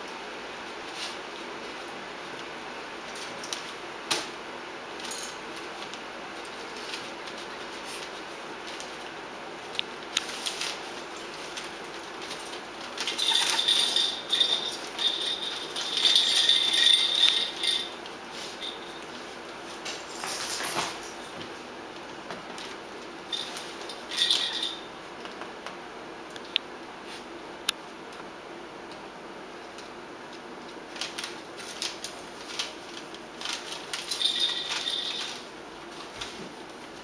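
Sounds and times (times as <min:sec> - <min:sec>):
paper rustling and rattling: 0:05.0 - 0:09.2, 0:10.0 - 0:21.6, 0:30.7 - 0:37.0
thin high ringing: 0:13.0 - 0:19.2, 0:23.3 - 0:24.9, 0:33.4 - 0:35.5.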